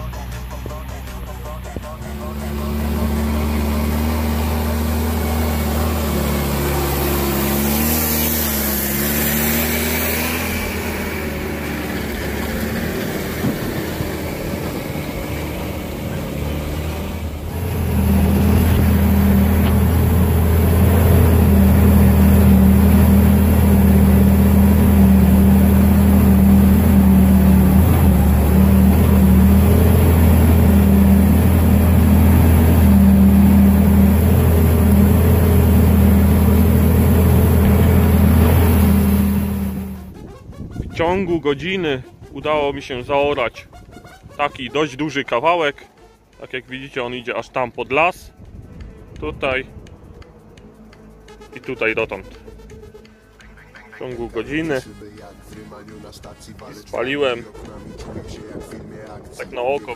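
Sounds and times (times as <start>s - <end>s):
tractor diesel engine under load: 0.0s - 40.2s, 46.4s - 59.9s.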